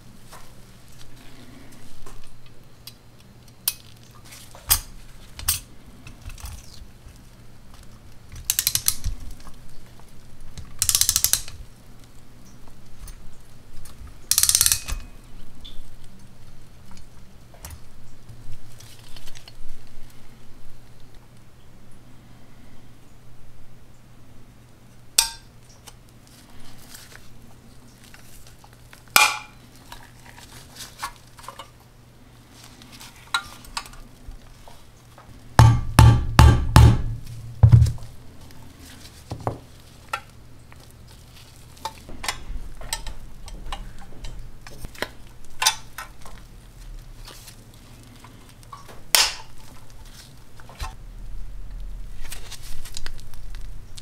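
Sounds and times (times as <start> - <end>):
small metal clicks and scrapes: 1.7 - 10.0, 10.6 - 11.6, 13.8 - 15.8, 41.1 - 48.9.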